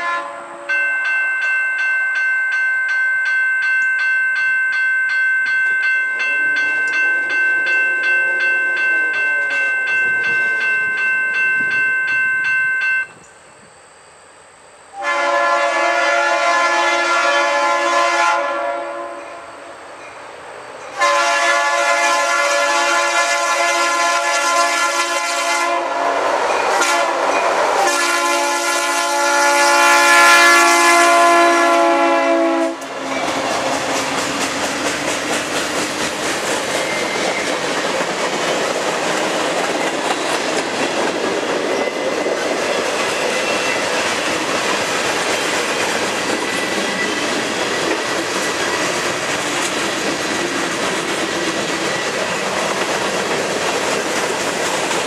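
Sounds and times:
locomotive air horn blasts: 0.0 - 0.8, 14.9 - 19.7, 21.0 - 34.1
train cars rumbling: 0.0 - 13.8, 15.0 - 55.0
wheels clacking over rail joints: 32.8 - 55.0.

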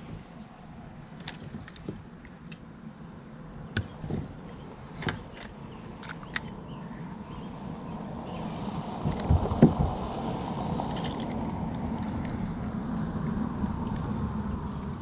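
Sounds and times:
low steady rumble: 0.0 - 15.0
light clicks and knocks: 3.7 - 6.6.

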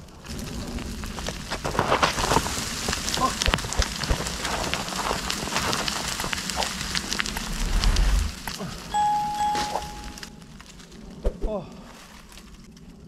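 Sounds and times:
low rumble: 6.9 - 8.6
footsteps crunching soil and leaves: 11.8 - 12.7.

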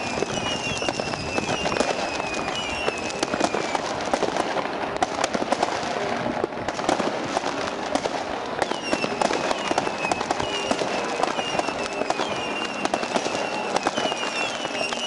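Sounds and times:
falling firework whistles: 0.0 - 4.3, 8.6 - 15.0
fireworks crackling and banging: 0.0 - 15.0.

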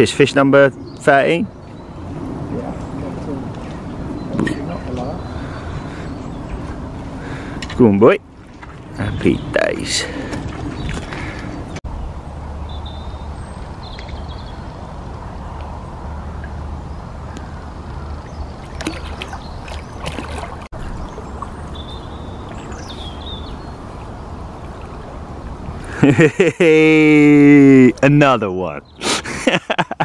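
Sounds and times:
fish splashing in water: 18.1 - 25.9.

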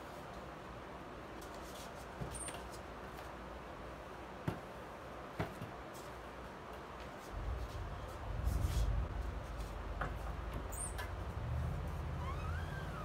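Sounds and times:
screen raising rumble: 7.3 - 13.0
squeegee squeak: 10.7 - 11.1, 11.9 - 13.0.

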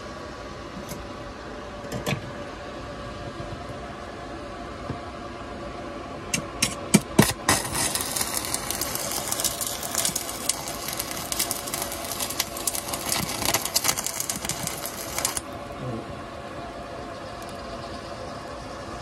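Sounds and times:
welding rod scratching metal: 6.6 - 15.5
welding arc crackling: 6.6 - 15.7.

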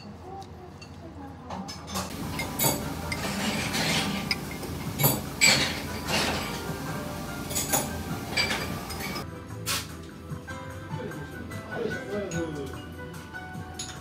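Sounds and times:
steady background noise: 0.0 - 9.4
spoons clinking on dishes: 1.8 - 9.2.

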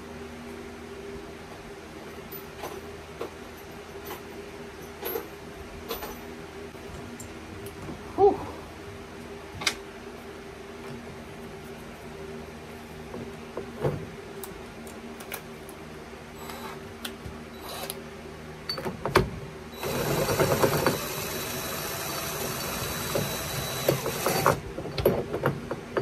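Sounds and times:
cordless driver running: 19.8 - 24.6.

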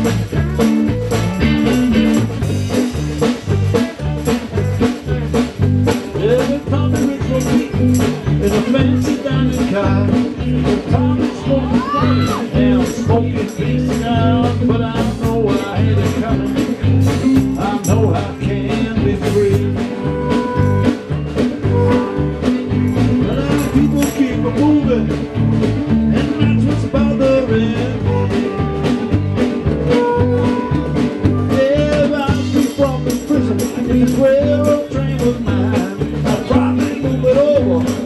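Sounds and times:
live band playing: 0.0 - 38.0
electric guitar lines: 19.5 - 38.0.

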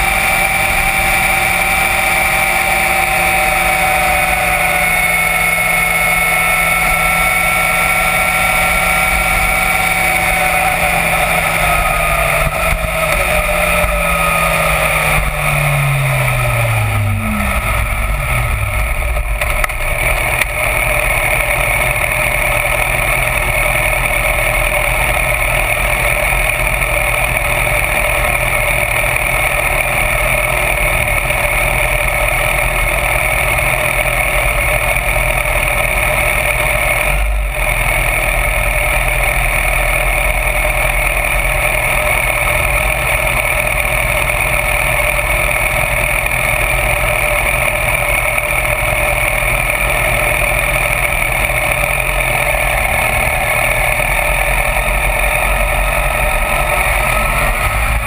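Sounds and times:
motorcycle engine: 0.0 - 58.0
wind rush and road noise: 0.0 - 58.0.

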